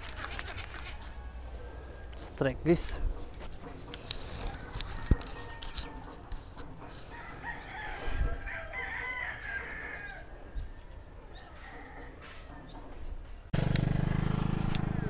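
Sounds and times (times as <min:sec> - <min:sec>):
rooster crowing: 0:04.4 - 0:06.2, 0:07.1 - 0:10.4, 0:14.8 - 0:15.0.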